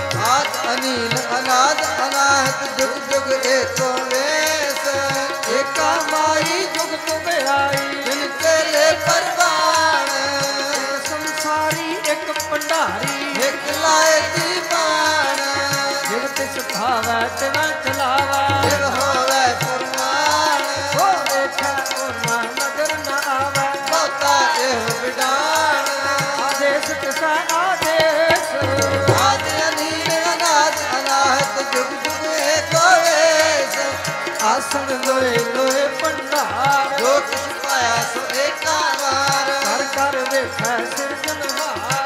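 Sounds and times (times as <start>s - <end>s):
person singing a melody: 0.0s - 42.0s
tabla drum strokes: 28.6s - 30.2s.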